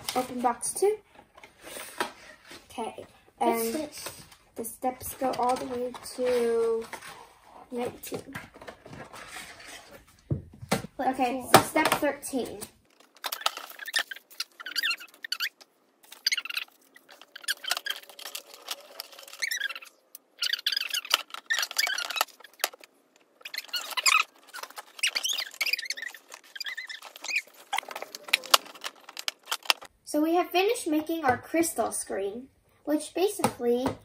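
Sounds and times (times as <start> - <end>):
clicks and rattles of parts: 12.6 - 29.9
squeaky sped-up voices: 13.3 - 28.8.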